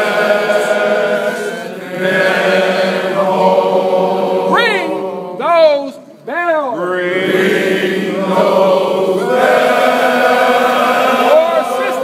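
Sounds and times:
men chanting in unison: 0.0s - 5.4s.

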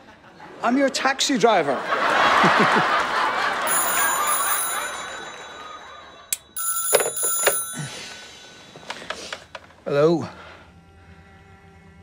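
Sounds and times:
audience laughter: 0.0s - 0.8s, 1.5s - 6.3s
telephone bell ringing: 3.3s - 9.5s.

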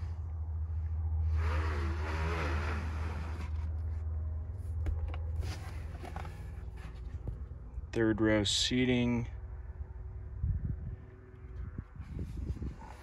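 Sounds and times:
steady low rumble: 0.0s - 13.0s
cargo cover sliding and rustling: 1.4s - 3.9s, 4.7s - 7.4s.

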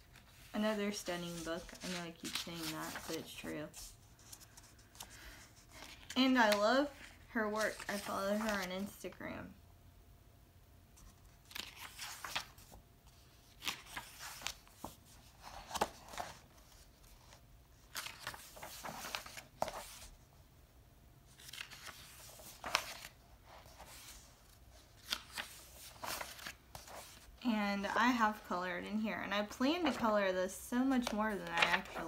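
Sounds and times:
book pages turning: 0.0s - 9.0s, 11.0s - 20.2s, 21.3s - 27.4s, 31.0s - 32.0s.

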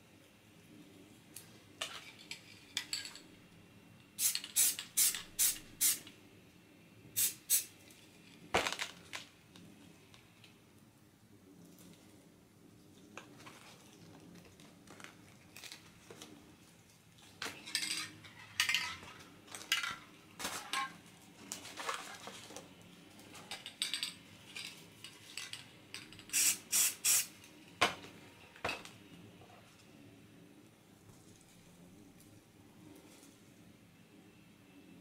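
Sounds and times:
spray paint can hissing: 4.2s - 6.1s, 7.2s - 7.7s, 26.3s - 27.3s.

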